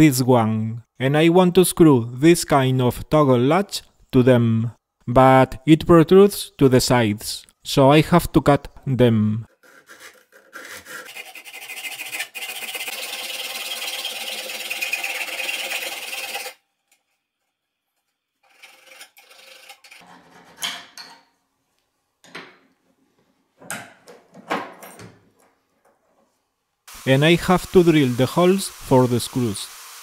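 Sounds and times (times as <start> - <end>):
hacksaw cutting metal: 9.6 - 16.6, 18.4 - 20.6.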